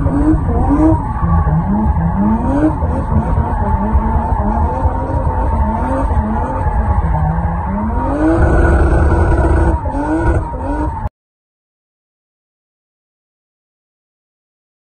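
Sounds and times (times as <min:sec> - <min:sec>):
car engine revving: 0:00.0 - 0:11.1.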